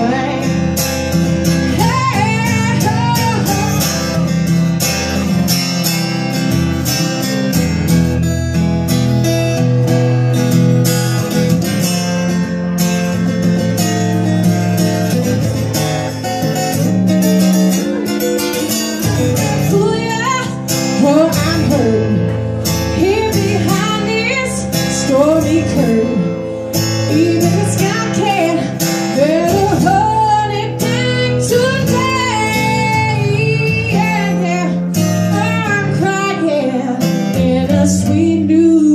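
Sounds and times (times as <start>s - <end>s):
woman singing: 0.0s - 4.4s, 18.7s - 38.9s
acoustic guitar strumming chords: 0.0s - 38.9s.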